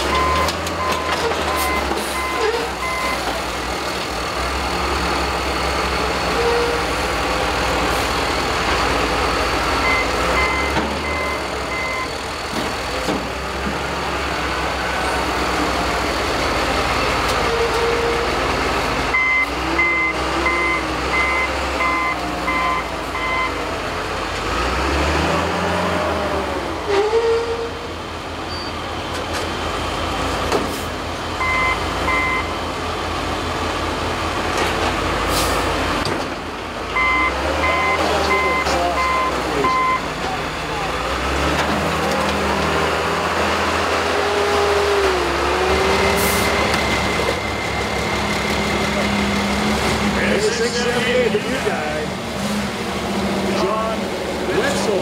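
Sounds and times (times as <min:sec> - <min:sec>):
heavy diesel engines running: 0:00.0 - 0:55.0
backup alarm beeping: 0:09.8 - 0:12.2, 0:19.1 - 0:23.6, 0:31.4 - 0:32.5, 0:37.0 - 0:40.1.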